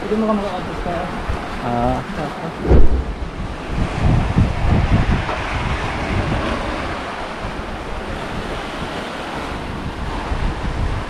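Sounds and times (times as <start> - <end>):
sea surf washing over rocks: 0.0 - 11.0
wind rumble on microphone: 2.5 - 11.0.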